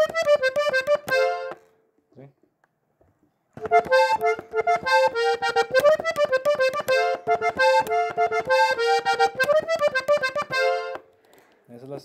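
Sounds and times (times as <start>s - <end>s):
button accordion playing: 0.0s - 1.7s, 3.6s - 11.1s.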